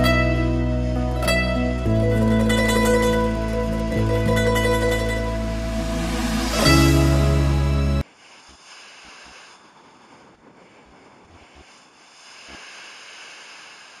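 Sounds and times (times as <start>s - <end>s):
music: 0.0s - 8.0s.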